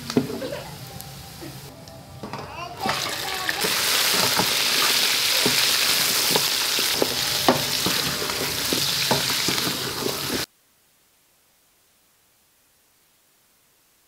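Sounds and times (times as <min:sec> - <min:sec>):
chicken sizzling in hot oil: 0:02.8 - 0:10.5
wooden spoon scraping pot: 0:03.6 - 0:10.5.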